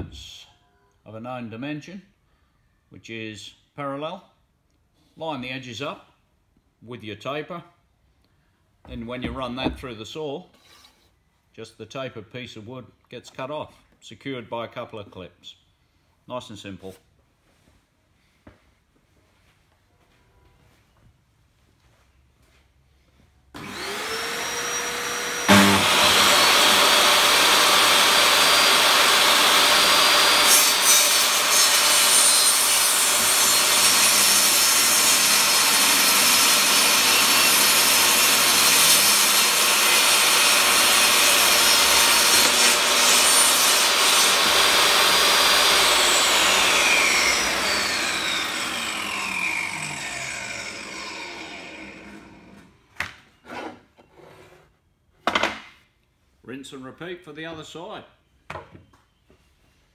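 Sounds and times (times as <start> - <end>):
saw cutting wood: 23.6 - 52.7
table saw motor running: 23.6 - 52.7.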